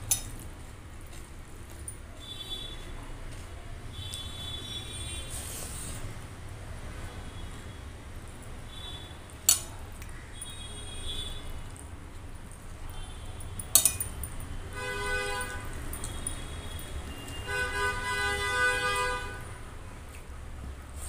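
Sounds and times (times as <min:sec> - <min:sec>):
horn sounding steady tone: 0:14.7 - 0:19.6.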